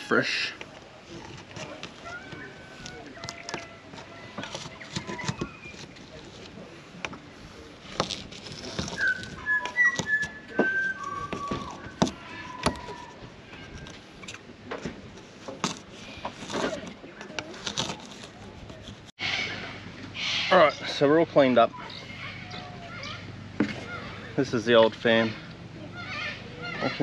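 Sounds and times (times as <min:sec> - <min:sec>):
sealant scraping and clicks: 0:01.1 - 0:07.2, 0:07.8 - 0:19.1.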